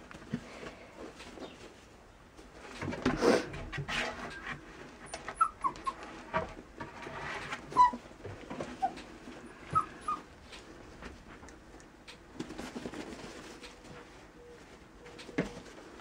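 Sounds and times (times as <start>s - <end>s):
puppies squeaking and whimpering: 5.1s - 6.2s, 7.7s - 10.3s.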